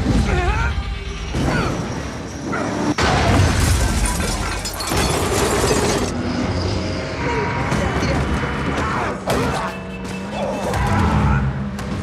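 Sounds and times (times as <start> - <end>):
crunching metal crash: 3.0 - 6.2
glass breaking: 3.5 - 6.2.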